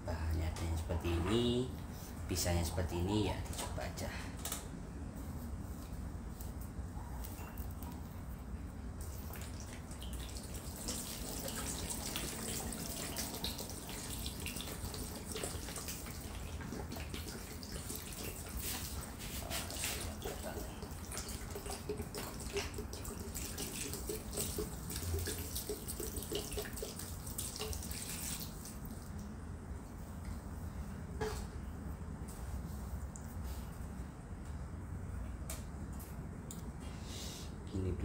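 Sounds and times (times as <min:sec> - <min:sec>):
small water splashes: 0:09.0 - 0:29.2
water trickling onto soil: 0:09.0 - 0:29.4.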